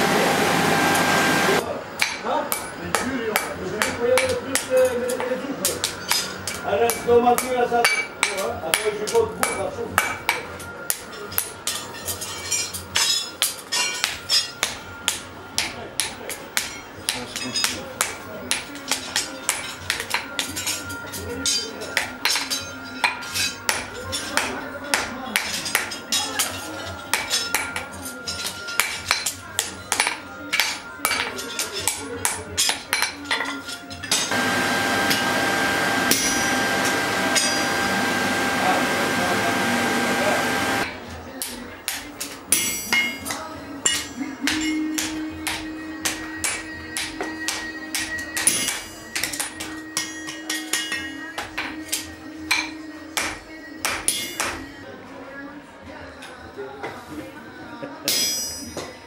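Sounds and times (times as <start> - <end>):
machine whirring with high whine: 0.0 - 1.6, 34.3 - 40.9
hammer striking iron on anvil: 2.0 - 5.2, 5.8 - 11.5, 34.1 - 40.9, 42.5 - 54.6.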